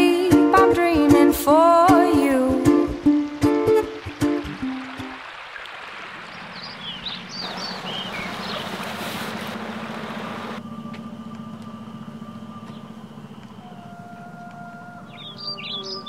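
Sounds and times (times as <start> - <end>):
running water rushing: 1.7 - 10.6
birds chirping: 4.1 - 10.6, 12.1 - 16.0
steady low hum: 7.5 - 15.6
long held tones: 10.6 - 16.0.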